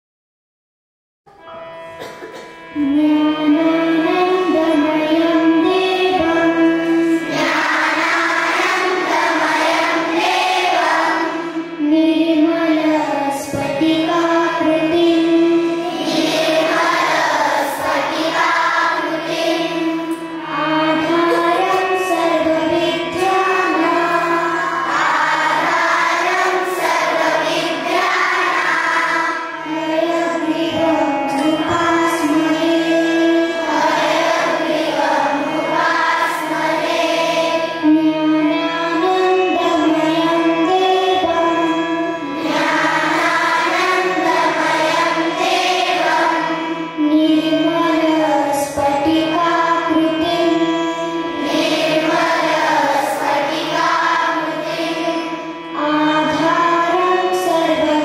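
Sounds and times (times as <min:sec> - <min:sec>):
steady held drone: 0:01.4 - 0:58.0
children singing in unison: 0:02.0 - 0:58.0.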